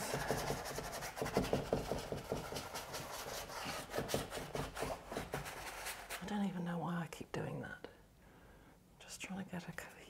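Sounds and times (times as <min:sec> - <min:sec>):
paintbrush scrubbing on canvas: 0:00.0 - 0:06.3.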